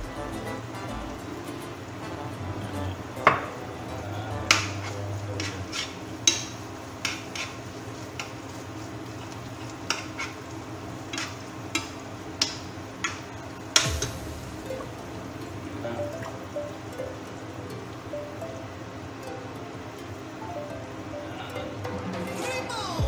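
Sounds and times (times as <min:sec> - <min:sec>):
food sizzling in a pan: 0:03.0 - 0:21.4
metal spoon scraping a pan: 0:04.5 - 0:08.4, 0:09.8 - 0:10.4, 0:11.1 - 0:11.9.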